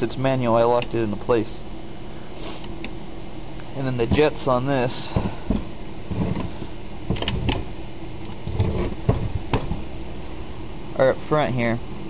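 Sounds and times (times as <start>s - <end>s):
steady background hum: 0.0s - 12.0s
carburetor knocks and clicks: 7.1s - 9.8s.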